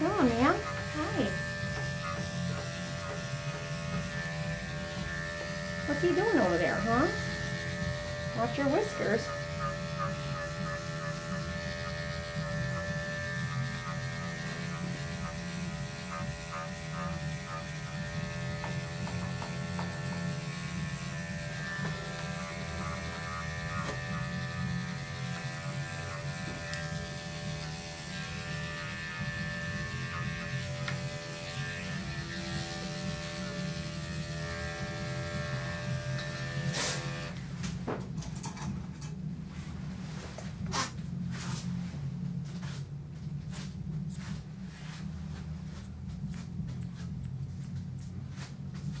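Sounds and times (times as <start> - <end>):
electric pet clippers buzzing: 0.0 - 39.2.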